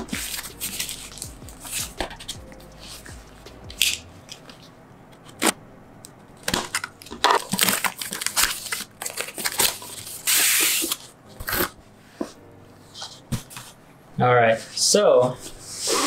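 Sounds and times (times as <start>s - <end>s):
paper and tape rustling: 0.0s - 3.2s, 6.4s - 13.8s.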